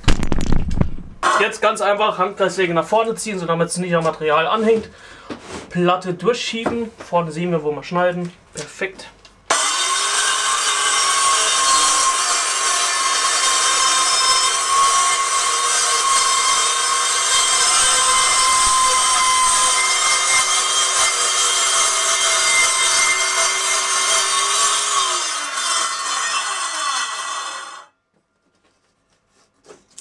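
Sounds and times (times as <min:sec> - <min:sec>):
circular saw cutting wood panel: 0:01.2 - 0:01.7, 0:09.5 - 0:27.9.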